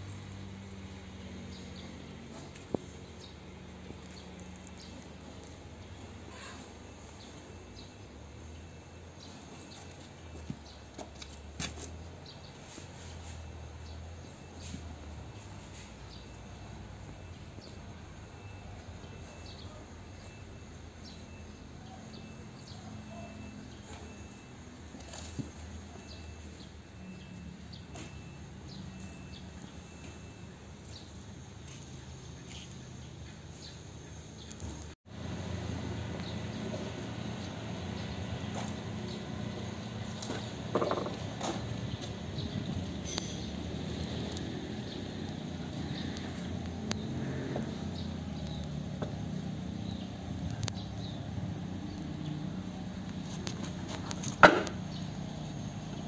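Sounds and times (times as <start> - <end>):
sharp metal clinks: 43.0 - 43.6.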